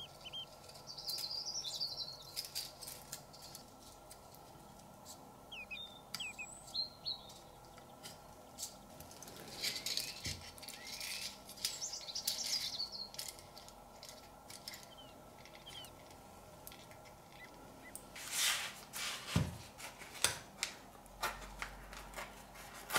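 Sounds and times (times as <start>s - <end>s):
birds chirping: 0.0s - 2.9s, 4.5s - 18.2s
aluminium foil crinkling: 0.0s - 5.2s, 7.4s - 16.1s.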